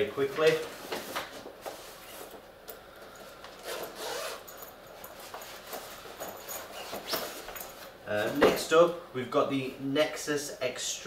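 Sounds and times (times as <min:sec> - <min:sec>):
bat cover rubbing: 0:03.6 - 0:04.5
zipper pulled open: 0:03.6 - 0:04.7.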